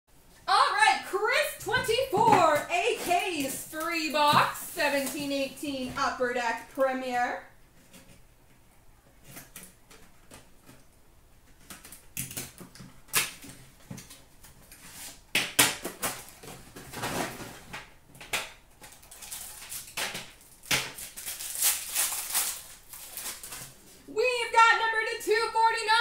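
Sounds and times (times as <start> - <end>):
foil wrapper crinkling: 18.8 - 24.1.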